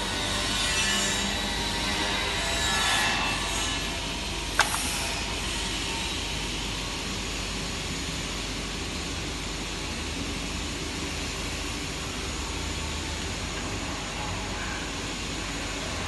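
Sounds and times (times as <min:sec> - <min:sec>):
fusing press hissing and humming: 0:03.7 - 0:16.0.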